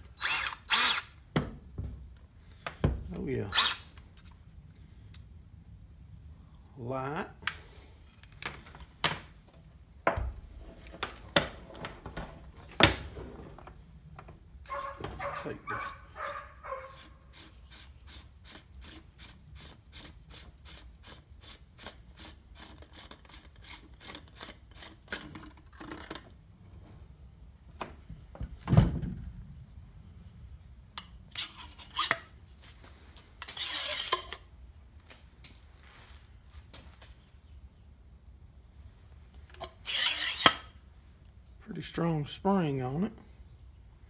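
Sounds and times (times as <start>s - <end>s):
metal scraping on metal: 31.3s - 32.3s, 33.4s - 34.4s, 39.6s - 40.7s.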